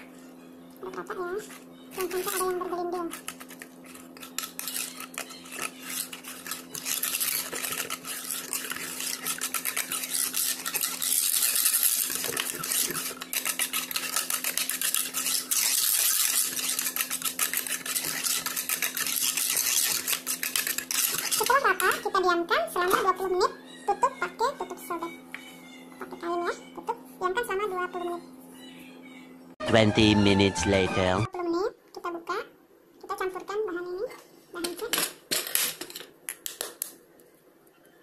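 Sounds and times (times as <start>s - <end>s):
whisk clattering in metal pan: 4.2s - 21.7s.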